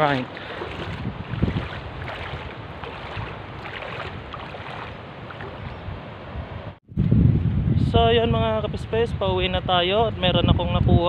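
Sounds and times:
water lapping and sloshing: 0:00.0 - 0:06.3
wind buffeting microphone: 0:00.0 - 0:11.0.

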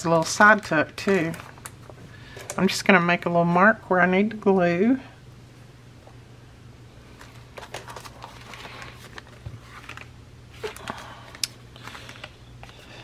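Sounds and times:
paper rustling: 0:07.2 - 0:11.2.

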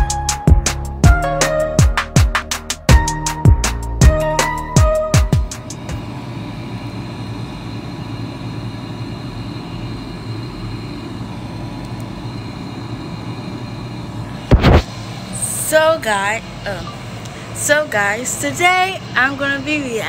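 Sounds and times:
air conditioner humming: 0:04.6 - 0:20.0
loud thump: 0:14.5 - 0:14.9.

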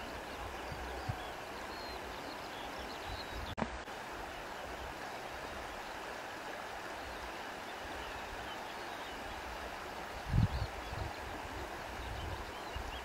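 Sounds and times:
stream water flowing: 0:00.0 - 0:13.0.

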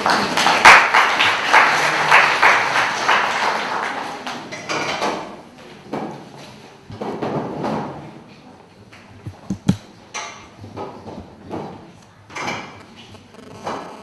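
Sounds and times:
hand clapping: 0:00.0 - 0:04.4, 0:09.3 - 0:09.8.

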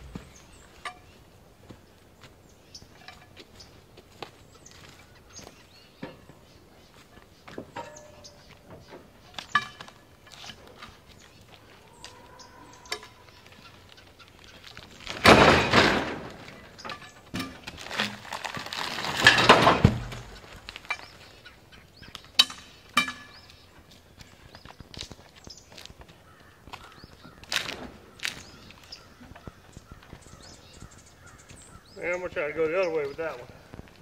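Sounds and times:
knocks and clicks of wood and metal: 0:07.5 - 0:11.0, 0:22.2 - 0:23.6
log scraping across logs: 0:13.1 - 0:21.2.

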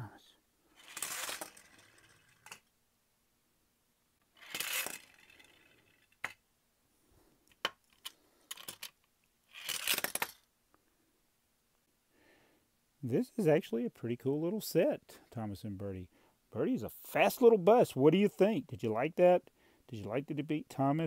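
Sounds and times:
plastic toys clicking and knocking: 0:00.8 - 0:02.7, 0:04.3 - 0:06.4, 0:07.5 - 0:10.5
toys scraping and rustling: 0:00.8 - 0:02.7, 0:04.2 - 0:06.4, 0:07.6 - 0:10.4.

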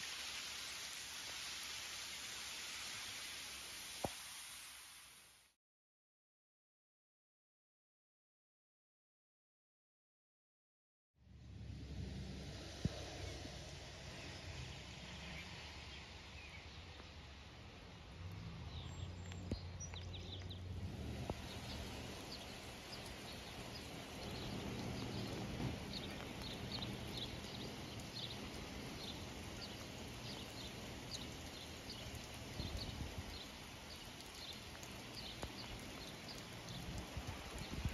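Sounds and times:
steady hiss: 0:00.0 - 0:05.5, 0:20.6 - 0:37.9
wind rumble on microphone: 0:11.4 - 0:15.2, 0:18.3 - 0:37.9.

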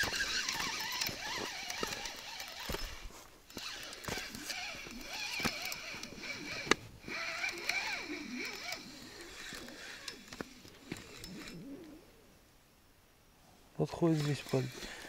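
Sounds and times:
fishing reel clicks and knocks: 0:00.0 - 0:11.6
insects calling: 0:00.0 - 0:12.3, 0:13.8 - 0:15.0.

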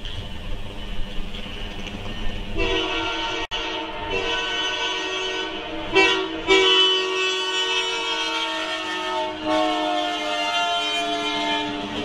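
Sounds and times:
locomotive air horn blasts: 0:02.6 - 0:12.0.

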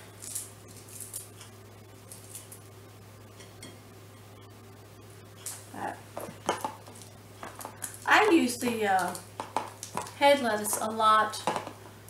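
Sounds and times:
lettuce leaves tearing: 0:00.0 - 0:01.4, 0:02.1 - 0:02.6
steady low hum: 0:00.0 - 0:12.0.

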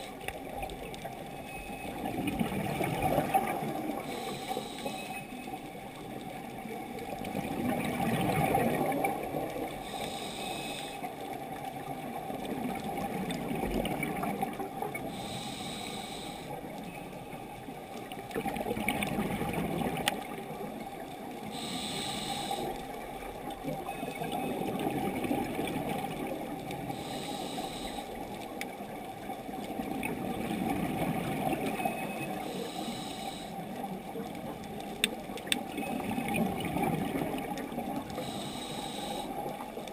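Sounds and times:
exhaled bubbles underwater: 0:00.0 - 0:04.4, 0:05.9 - 0:10.0, 0:11.2 - 0:15.3, 0:16.5 - 0:32.8, 0:33.6 - 0:39.9
regulator breath hiss: 0:04.1 - 0:05.2, 0:09.8 - 0:11.1, 0:15.1 - 0:16.6, 0:21.5 - 0:22.8, 0:26.9 - 0:28.2, 0:32.4 - 0:33.6, 0:38.2 - 0:39.4.

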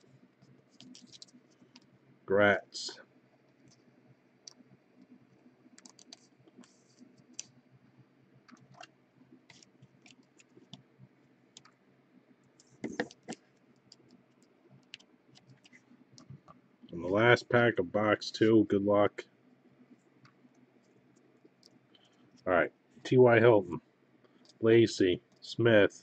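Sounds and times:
trading cards and plastic handled: 0:00.7 - 0:01.9.

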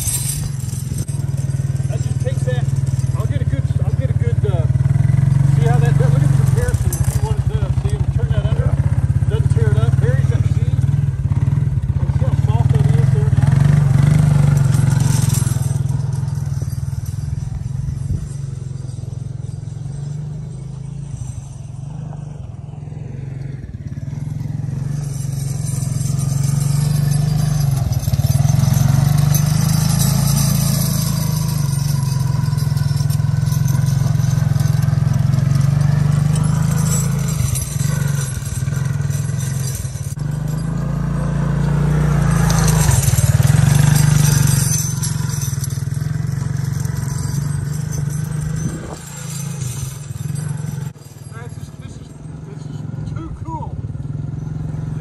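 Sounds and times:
four-wheeler engine running: 0:00.0 - 0:55.0.

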